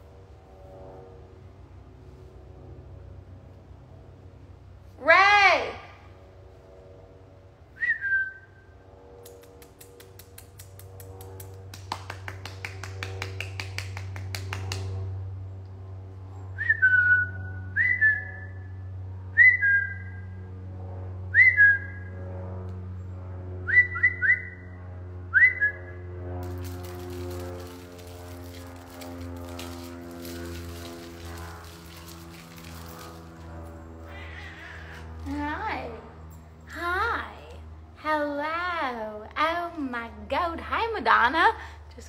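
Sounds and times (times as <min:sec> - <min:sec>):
steady low hum: 0:00.0 - 0:42.0
quick clicks: 0:09.2 - 0:11.6.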